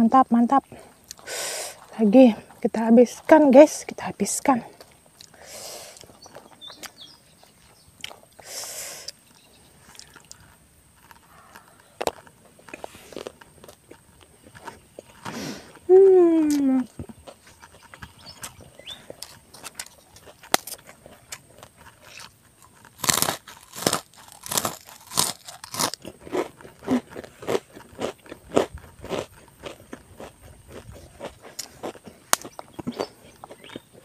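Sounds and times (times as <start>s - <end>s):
chewing crunches: 0.8s - 1.9s, 4.7s - 15.9s, 16.5s - 34.0s
crunching cracker: 9.8s - 15.8s, 16.8s - 34.0s
woman humming: 15.8s - 17.0s.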